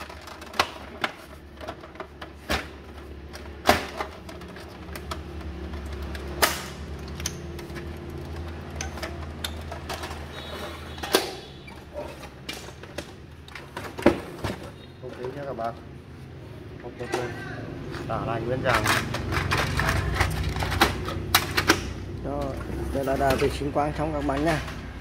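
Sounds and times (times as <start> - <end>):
handling clatter: 17.0 - 21.8.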